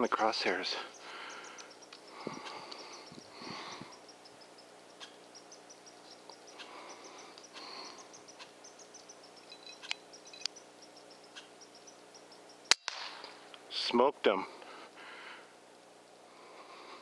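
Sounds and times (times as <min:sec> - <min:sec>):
faint outdoor background: 0:00.0 - 0:17.0
small clicks: 0:09.5 - 0:10.6
suppressed air rifle shot: 0:12.7 - 0:13.4.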